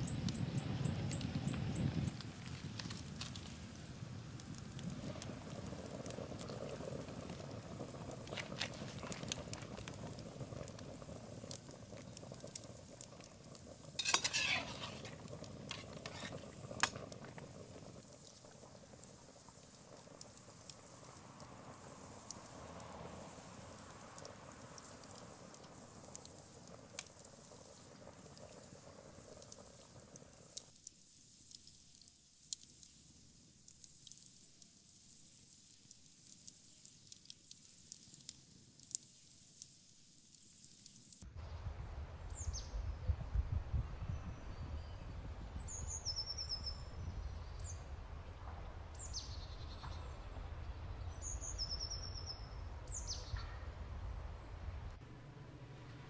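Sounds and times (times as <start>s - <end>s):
wood fire crackling: 0.0s - 41.2s
metal clatter: 14.0s - 16.4s.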